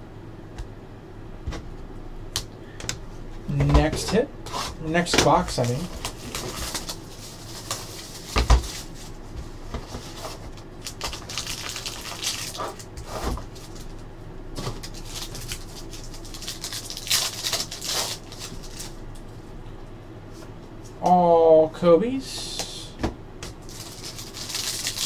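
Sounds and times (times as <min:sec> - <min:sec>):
plastic shrink-wrap crinkling: 0:05.5 - 0:09.2, 0:09.8 - 0:14.0, 0:14.6 - 0:19.0, 0:23.6 - 0:25.0
wrapper tearing with rustling: 0:05.6 - 0:09.2, 0:10.0 - 0:14.0, 0:14.6 - 0:19.0, 0:23.6 - 0:25.0.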